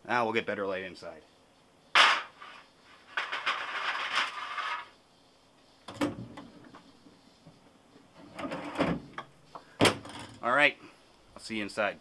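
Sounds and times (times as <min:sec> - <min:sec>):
clattering scraping handling noise: 0:02.0 - 0:04.9, 0:08.1 - 0:09.3.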